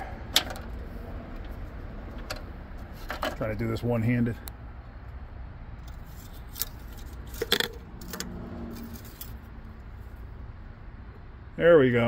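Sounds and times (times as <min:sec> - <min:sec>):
dipstick clicking and scraping: 0:05.8 - 0:09.5.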